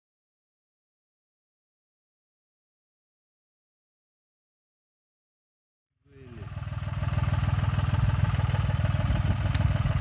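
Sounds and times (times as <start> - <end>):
motorcycle engine running: 6.2 - 10.0.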